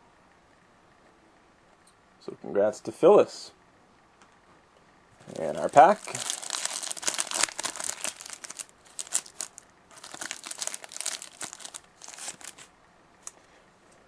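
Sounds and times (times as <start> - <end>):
wrapper crinkling: 5.2 - 12.7.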